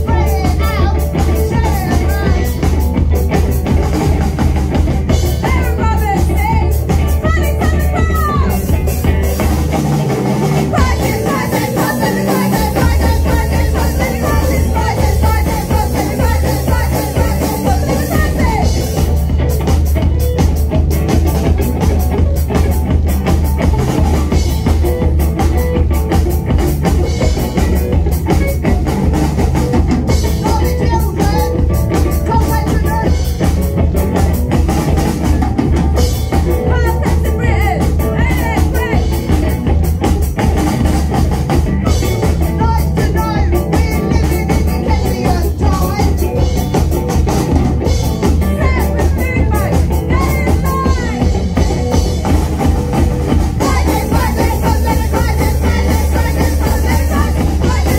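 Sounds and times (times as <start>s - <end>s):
lead vocal singing: 0.0s - 2.9s, 10.2s - 19.2s, 30.1s - 33.6s, 36.3s - 39.9s, 41.9s - 57.9s
bass guitar: 0.0s - 57.9s
distorted electric guitar: 0.0s - 57.9s
drum kit: 0.0s - 57.9s.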